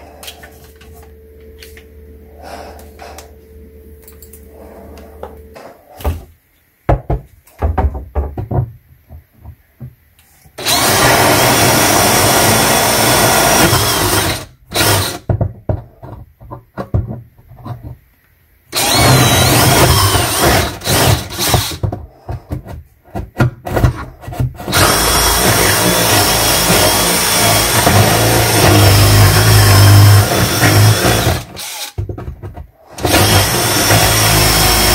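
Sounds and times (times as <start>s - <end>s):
jigsaw cutting wood: 10.6s - 15.3s, 18.7s - 21.9s, 24.6s - 32.0s, 32.9s - 34.9s.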